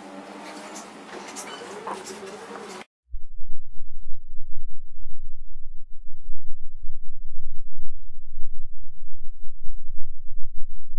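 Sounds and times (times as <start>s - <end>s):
loud deep rumble: 3.1s - 10.9s.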